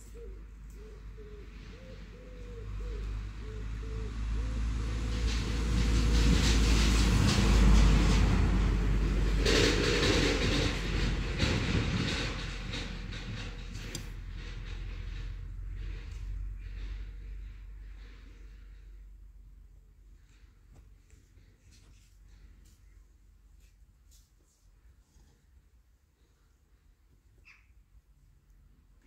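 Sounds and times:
vehicle passing by: 1.0s - 20.5s.

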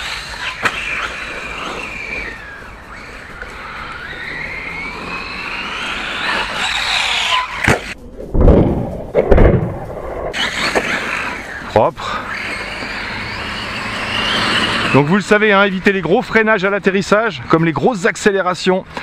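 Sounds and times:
electric motor whining: 0.0s - 8.0s, 10.4s - 17.0s
loud rough bursts: 0.0s - 8.0s, 8.6s - 17.1s.

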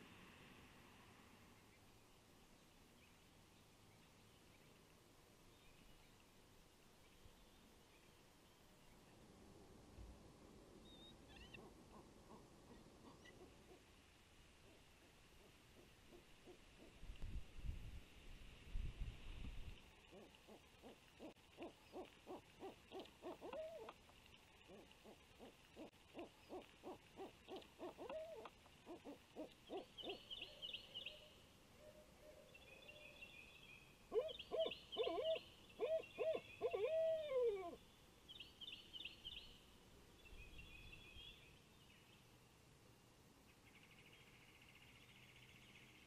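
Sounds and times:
owl hooting: 11.3s - 13.9s, 15.4s - 17.0s, 20.1s - 24.0s, 24.7s - 30.5s, 34.1s - 37.8s.

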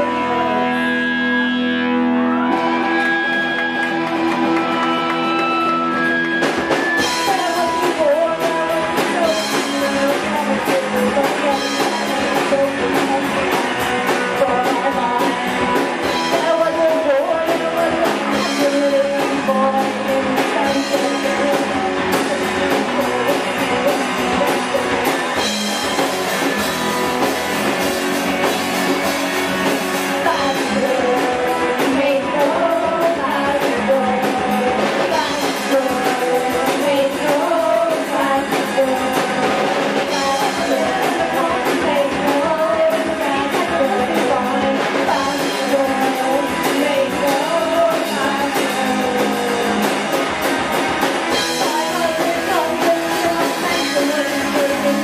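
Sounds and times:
woman singing: 0.0s - 1.0s, 6.9s - 26.1s, 30.1s - 50.1s, 51.3s - 55.0s
drum kit: 0.0s - 55.0s
electric bass: 0.0s - 55.0s
electric guitars: 0.0s - 55.0s.

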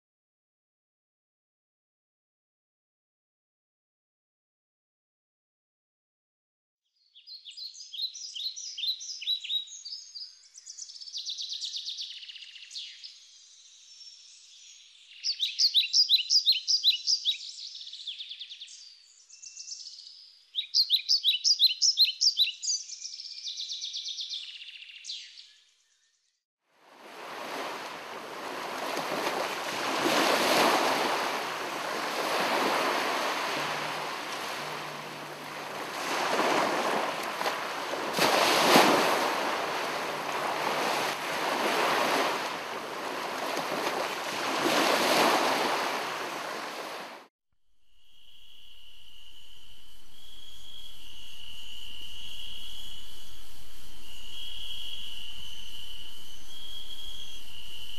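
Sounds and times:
birds chirping and trilling: 7.0s - 26.4s, 28.5s - 44.1s
ocean waves washing in: 26.8s - 47.3s.

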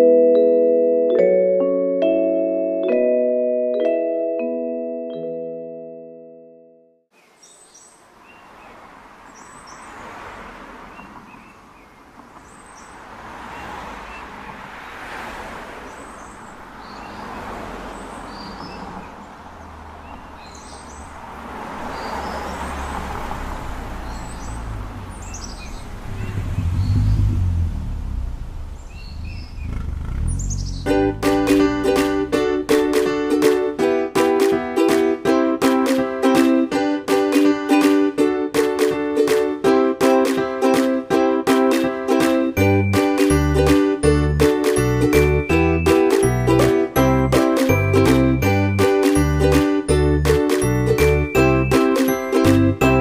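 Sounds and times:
small birds chirping: 7.1s - 10.2s, 10.8s - 14.7s, 15.8s - 23.1s, 23.8s - 27.4s, 28.3s - 31.6s
low rumble: 25.8s - 31.3s.

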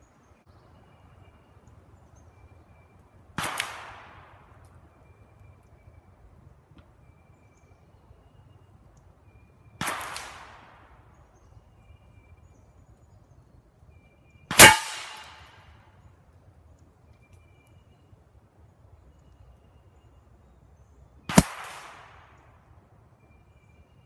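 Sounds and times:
revolver shots with echo: 14.5s - 15.5s.

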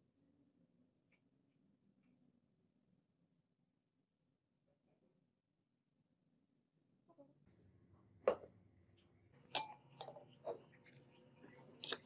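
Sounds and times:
glassware clinking: 9.6s - 10.6s.

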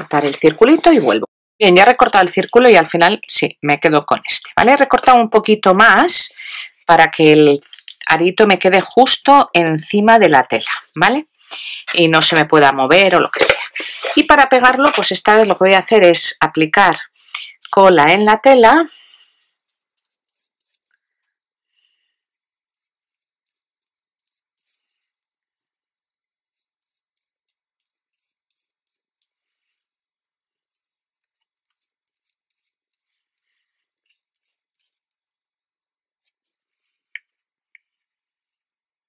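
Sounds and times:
paintbrush brushing glue: 0.0s - 1.3s, 13.3s - 15.6s, 19.1s - 39.0s.

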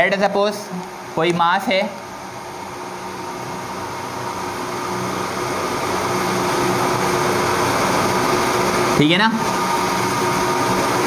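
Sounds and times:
mechanical hum with whine: 0.0s - 11.0s.

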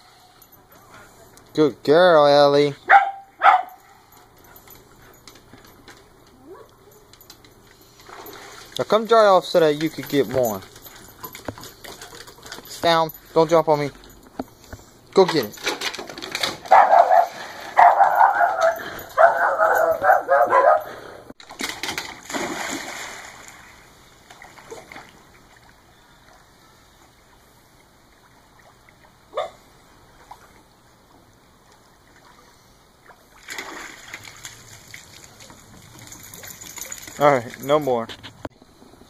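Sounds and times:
dog barking excitedly: 2.8s - 4.0s, 16.6s - 21.0s
water lapping: 7.6s - 13.3s, 22.2s - 37.3s
dog splashing into pool: 8.0s - 10.5s, 21.5s - 25.7s, 32.0s - 37.2s.

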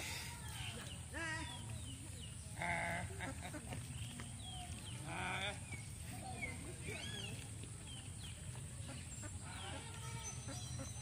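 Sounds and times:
birds chirping: 0.0s - 11.0s
farm animal bleating: 9.4s - 11.0s.

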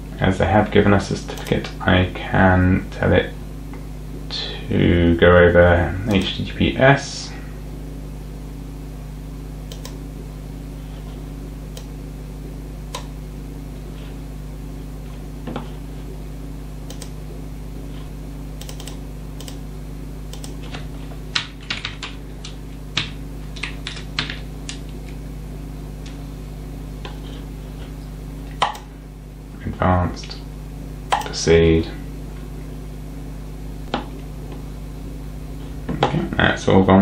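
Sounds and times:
steady low hum: 0.0s - 37.0s
computer keyboard typing: 9.7s - 10.0s, 16.9s - 17.2s, 18.6s - 19.6s, 20.3s - 24.8s.

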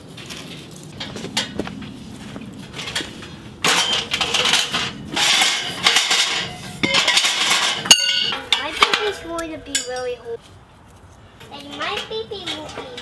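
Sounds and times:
sheet-metal stove clattering: 2.6s - 10.2s.

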